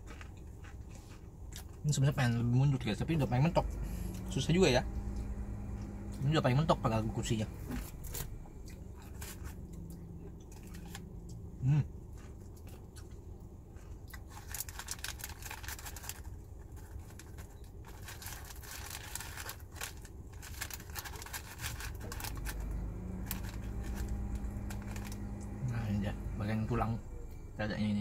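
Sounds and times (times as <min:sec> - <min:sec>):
chewing crispy fried chicken: 0:00.0 - 0:02.1, 0:08.1 - 0:25.7
low steady hum: 0:00.0 - 0:28.0.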